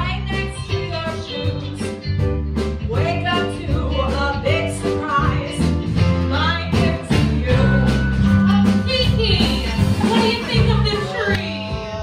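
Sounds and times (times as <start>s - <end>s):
live band accompaniment: 0.0s - 12.0s
woman singing show tune: 2.9s - 12.0s.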